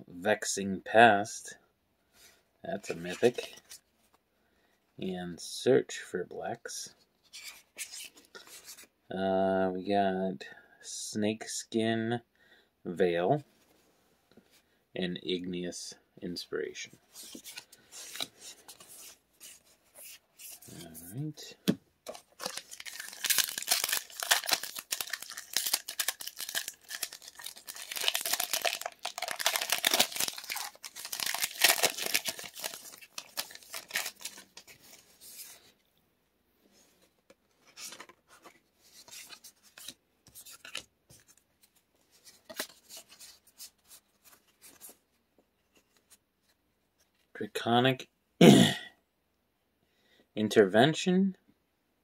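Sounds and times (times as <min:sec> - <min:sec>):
cards rustling and clicking: 0:17.1 - 0:21.3, 0:22.1 - 0:35.7, 0:37.2 - 0:45.0
wrapper tearing and crinkling: 0:22.1 - 0:35.0.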